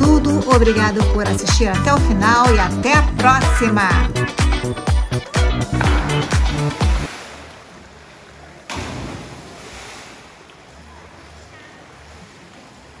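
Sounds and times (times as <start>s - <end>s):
music with heavy beat: 2.4s - 7.1s
water washing: 5.4s - 13.0s.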